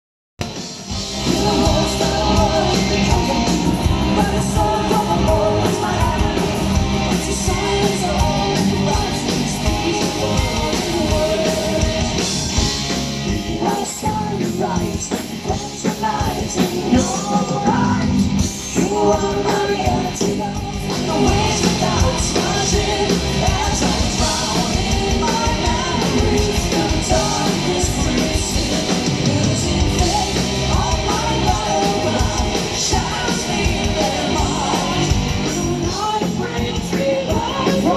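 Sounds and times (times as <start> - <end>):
bass: 0.4 - 37.9
distorted electric guitars: 0.4 - 37.9
drums: 0.4 - 37.9
man singing: 1.2 - 12.2, 13.3 - 37.9
woman singing: 18.8 - 37.9.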